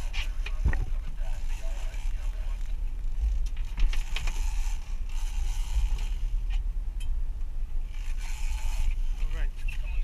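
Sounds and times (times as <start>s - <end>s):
fishing reel clicks and knocks: 0.0s - 7.2s
boat engine rumble: 0.0s - 10.0s.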